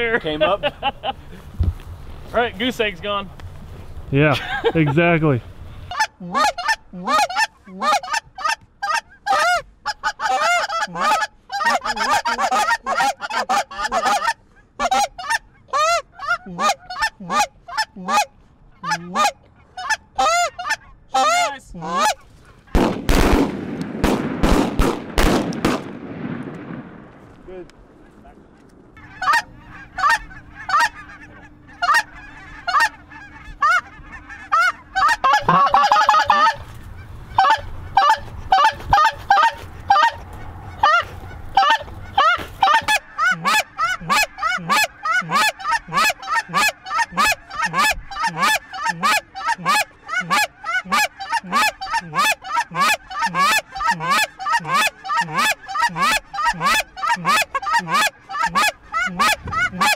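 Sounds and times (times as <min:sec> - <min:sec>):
goose calls honking and clucking: 0:05.9 - 0:22.8, 0:29.0 - 0:59.9.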